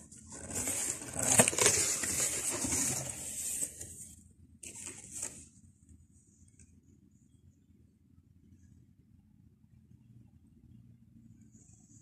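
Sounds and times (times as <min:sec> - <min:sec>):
packaging rustling and crinkling: 0:00.1 - 0:05.5.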